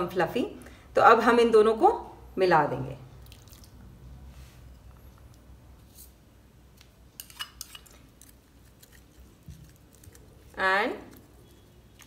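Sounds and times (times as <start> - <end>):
spoon scraping ceramic bowl: 7.2 - 10.5.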